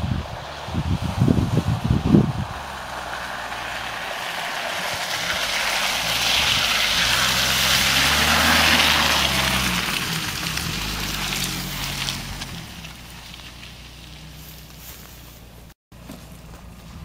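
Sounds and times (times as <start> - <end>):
car engine running: 0.0 - 17.0
tyres hissing through mud: 0.0 - 17.0.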